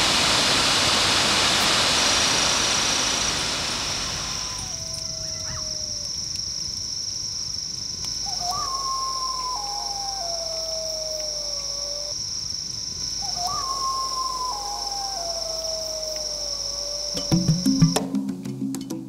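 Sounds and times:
high-pitched insect chorus: 1.6s - 18.1s
animal wailing calls: 3.9s - 6.3s, 8.2s - 12.1s, 13.2s - 17.9s.

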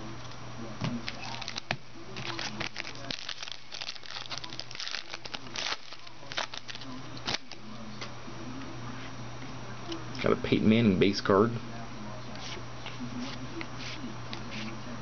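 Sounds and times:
foil wrapper crinkling and tearing: 1.1s - 7.6s.

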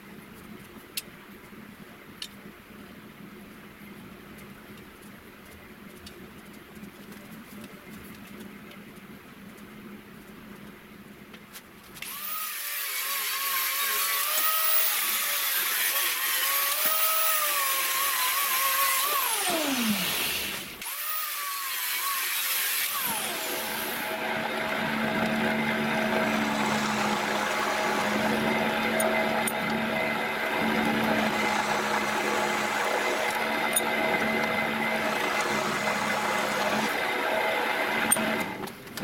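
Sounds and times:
angle grinder cutting steel: 12.0s - 38.5s
drill press humming: 22.8s - 38.7s.

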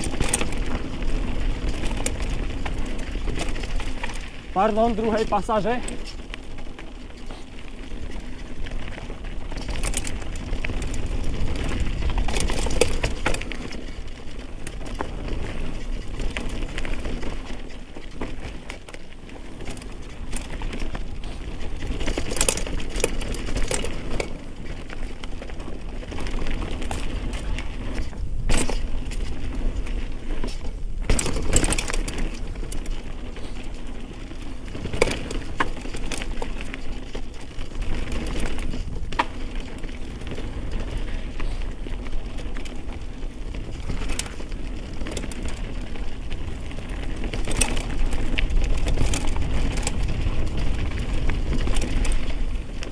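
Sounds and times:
bike knocking on roots and rocks: 0.0s - 52.9s
bike tyre noise on dirt: 0.0s - 52.9s
chain and frame rattling: 9.4s - 13.9s, 19.6s - 24.5s.

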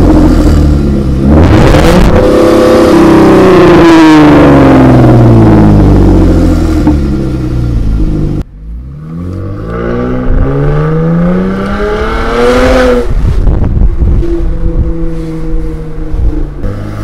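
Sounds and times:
engine accelerating: 0.0s - 17.0s
car engine idling: 4.8s - 9.5s.

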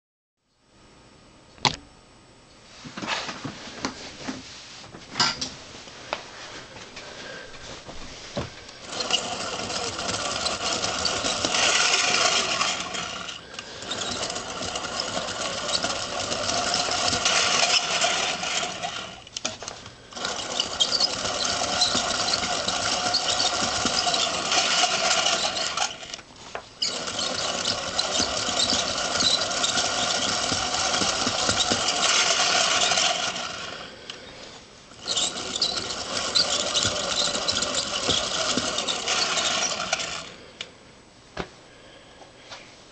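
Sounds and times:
ball-bearing motor rattling whir: 8.8s - 33.9s, 34.9s - 40.4s.

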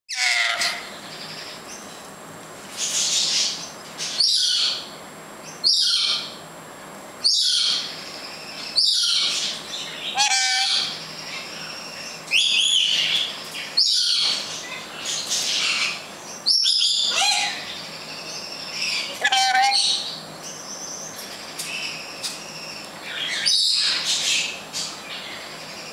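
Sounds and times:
parrot high-pitched calls: 0.1s - 1.0s, 4.0s - 4.9s, 5.6s - 6.4s, 7.2s - 20.2s, 21.8s - 24.6s.

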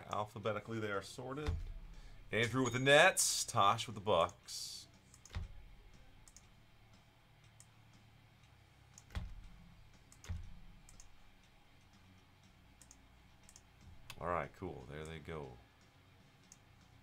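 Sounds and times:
computer mouse and keyboard clicks: 5.1s - 5.6s, 6.2s - 6.5s, 8.9s - 11.2s, 12.8s - 14.2s.

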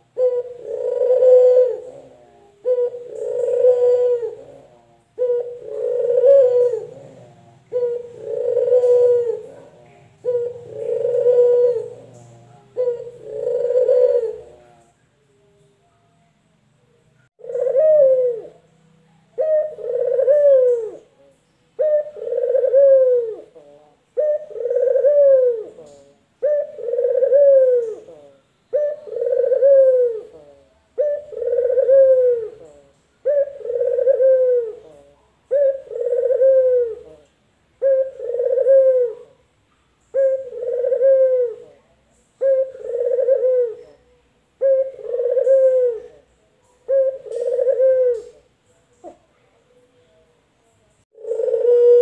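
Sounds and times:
dove cooing: 0.0s - 15.0s, 17.4s - 18.7s, 19.3s - 39.4s, 40.0s - 49.3s, 51.1s - 52.0s.

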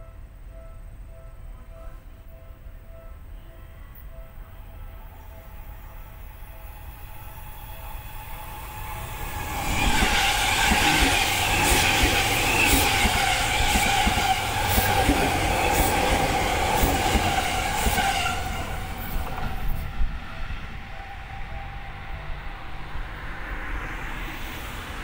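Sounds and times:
train whine: 0.0s - 25.0s
train wheels rushing on rail: 6.7s - 25.0s
rail clacks: 8.8s - 20.2s.

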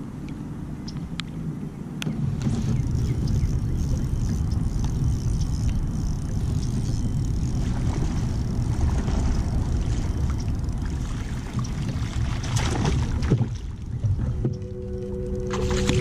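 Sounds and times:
wind buffeting microphone: 0.0s - 16.0s
faint ticks: 2.8s - 11.0s, 11.6s - 12.6s.

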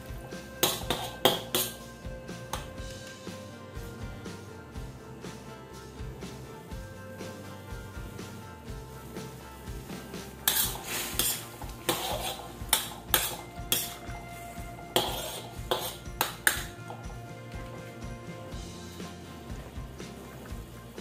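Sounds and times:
metal spatula scraping a wok: 0.0s - 1.9s, 10.3s - 17.0s.

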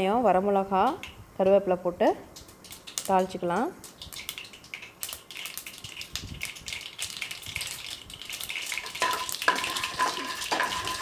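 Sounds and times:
hot oil sizzling and crackling: 2.3s - 11.0s.

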